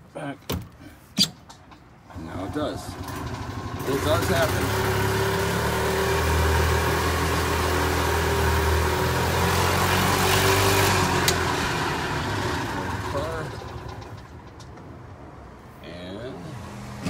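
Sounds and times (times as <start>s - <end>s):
golf cart engine running: 2.1s - 15.0s.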